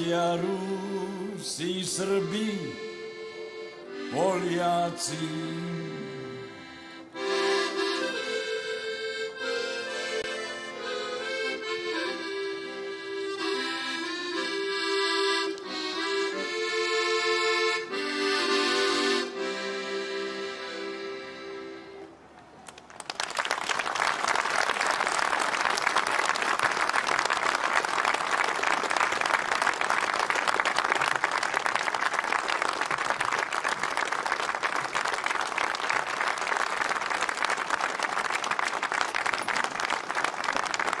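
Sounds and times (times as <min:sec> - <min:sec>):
audience applauding: 0:22.6 - 0:41.0.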